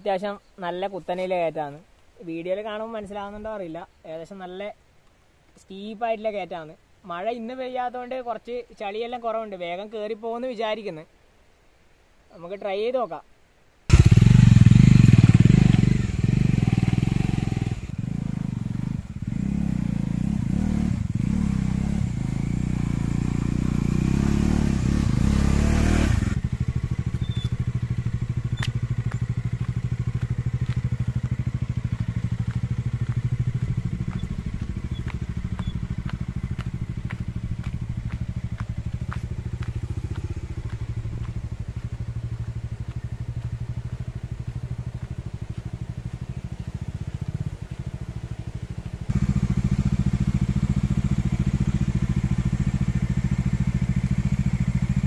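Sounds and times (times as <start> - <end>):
motorcycle engine revving: 13.9 - 55.0.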